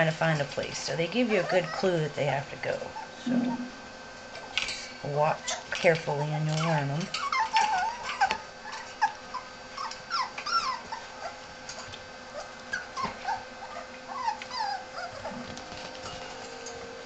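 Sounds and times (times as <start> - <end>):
puppies yipping and whining: 1.2 - 2.1, 2.9 - 3.8, 6.6 - 16.8.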